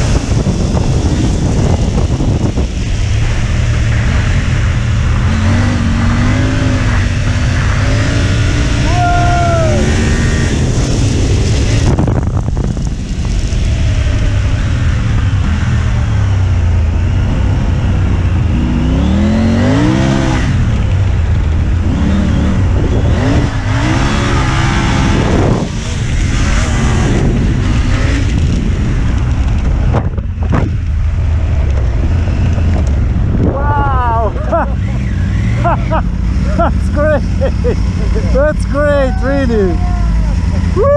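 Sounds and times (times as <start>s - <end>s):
motorcycle engine running: 0.0s - 40.9s
wind rushing on microphone: 0.0s - 40.9s.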